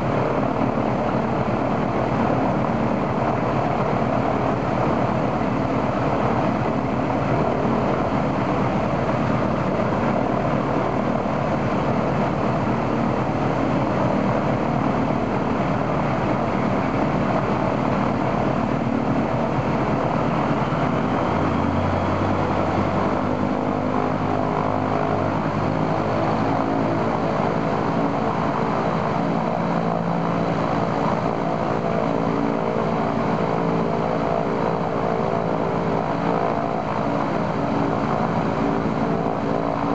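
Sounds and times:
radial aircraft engine running: 0:00.0 - 0:39.9.

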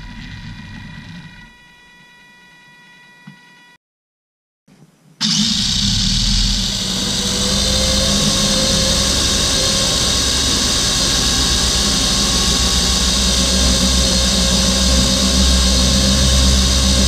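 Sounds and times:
electric motor high whine: 0:05.2 - 0:17.0
low rolling rumble: 0:06.5 - 0:17.0.

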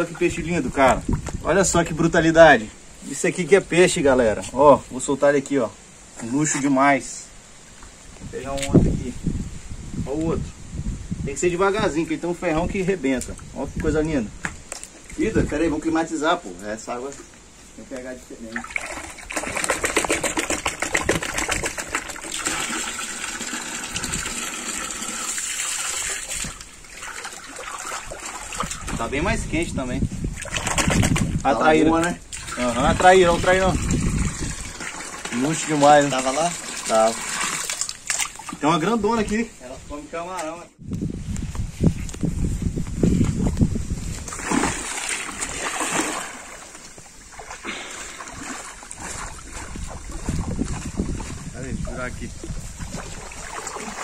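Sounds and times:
water splashing and sloshing: 0:18.3 - 0:29.5, 0:30.2 - 0:39.6, 0:43.0 - 0:54.0
water pouring into basin: 0:18.5 - 0:29.0, 0:32.3 - 0:38.6, 0:52.8 - 0:54.0.

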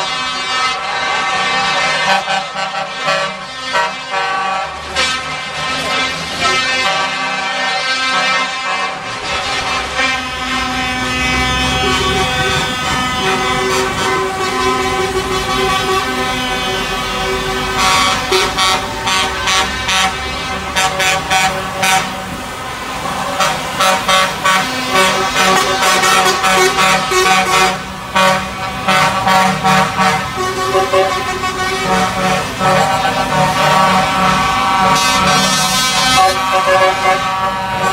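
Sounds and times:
truck air horns: 0:00.0 - 0:37.9
truck engines running: 0:00.0 - 0:37.9.

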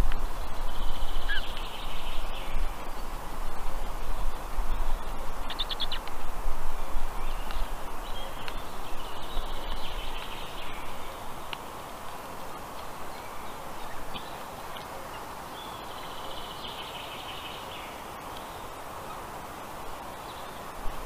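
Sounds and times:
high chirping of chicks: 0:05.4 - 0:06.1.

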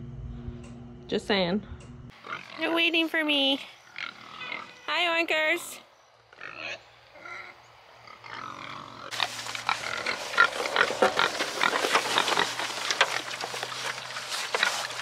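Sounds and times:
pigs grunting softly: 0:06.4 - 0:15.0
pigs chomping at trough: 0:09.1 - 0:15.0.

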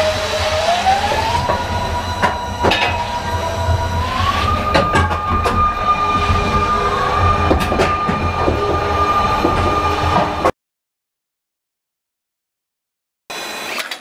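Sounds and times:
roller coaster high whine: 0:00.0 - 0:10.5.

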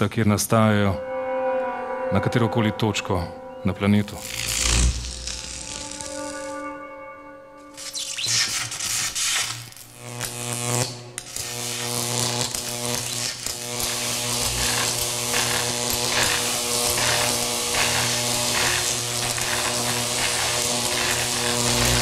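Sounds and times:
tesla coil buzzing and crackling: 0:04.1 - 0:06.7, 0:07.7 - 0:22.0.

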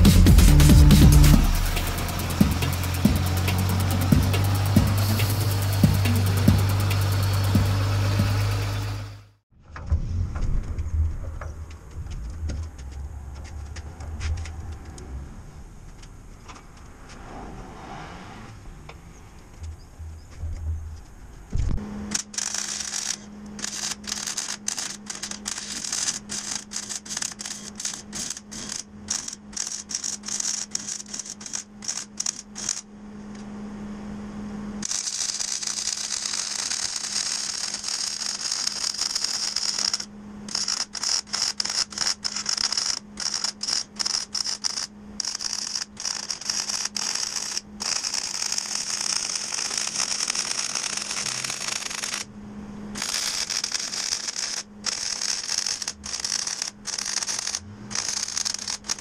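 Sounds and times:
arc welding crackling: 0:00.0 - 0:08.9, 0:22.1 - 0:32.8, 0:34.8 - 0:52.3, 0:53.0 - 0:59.0
low hum: 0:00.0 - 0:26.7.

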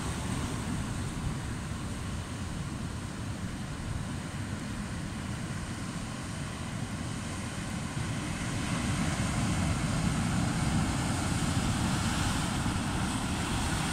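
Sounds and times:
ocean surf breaking on rocks: 0:00.0 - 0:02.6, 0:08.0 - 0:13.9.

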